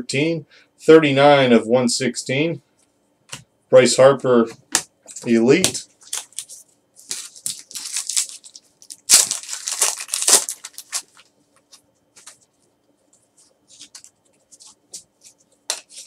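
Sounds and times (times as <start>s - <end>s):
foil wrapper crinkling and tearing: 6.0s - 12.4s.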